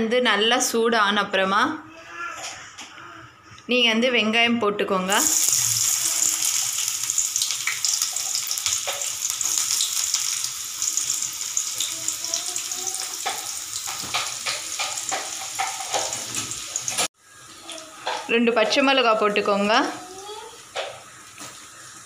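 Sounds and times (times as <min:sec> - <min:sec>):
onions sizzling in hot oil: 0:05.1 - 0:22.0
oil crackling: 0:05.2 - 0:17.1.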